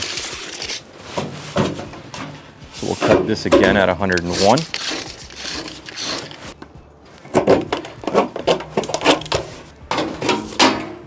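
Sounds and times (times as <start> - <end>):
hand cutting thin metal pipe: 3.6 - 6.5.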